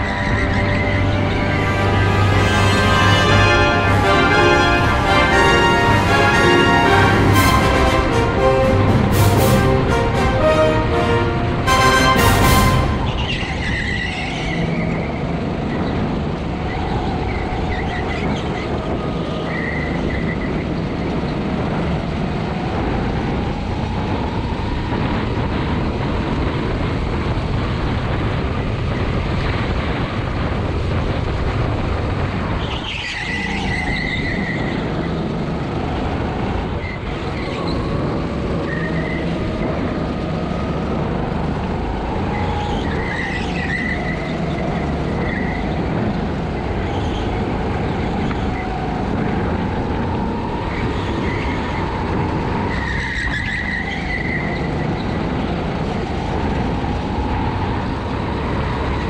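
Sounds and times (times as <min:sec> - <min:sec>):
kart engine running hard: 0:00.0 - 0:08.0, 0:12.8 - 0:59.0
tyre squeals: 0:32.6 - 0:35.3, 0:42.3 - 0:47.4.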